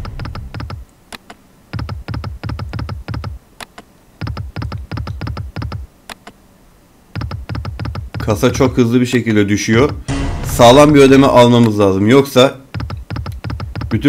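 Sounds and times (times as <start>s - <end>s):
slot reels stopping with clicky thuds: 0.0s - 0.8s
sharp click: 0.0s - 6.4s.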